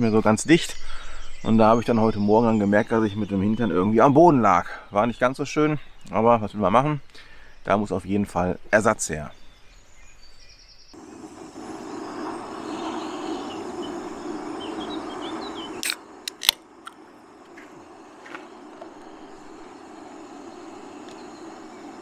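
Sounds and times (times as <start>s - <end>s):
steady rushing noise: 11.0s - 22.0s
sharp clicks: 15.7s - 18.9s.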